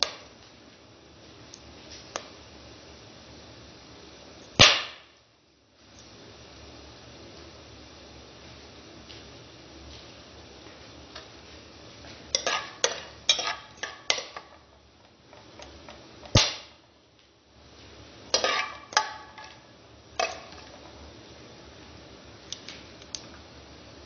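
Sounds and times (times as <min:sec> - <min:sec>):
metal spoon stirring spices in pot: 0:12.3 - 0:14.7, 0:18.3 - 0:19.6.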